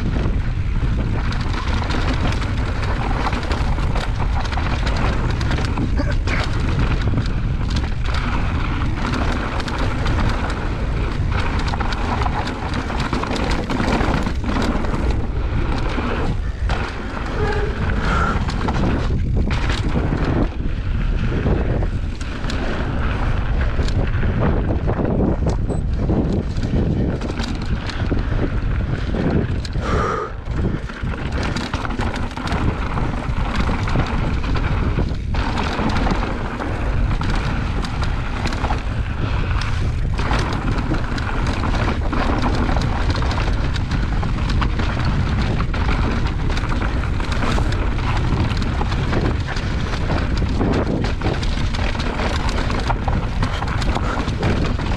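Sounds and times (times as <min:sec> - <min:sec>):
bike clattering over rocky trail: 0:00.0 - 0:29.9, 0:30.5 - 0:54.9
wind buffeting microphone: 0:00.0 - 0:54.9.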